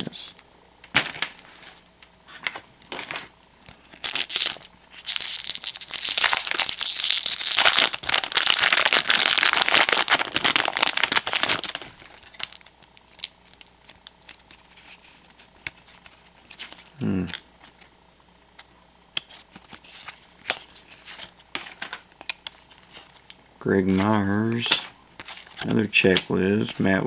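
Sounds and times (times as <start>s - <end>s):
wrapper crinkling: 2.9s - 16.9s
cards being handled: 18.6s - 27.0s.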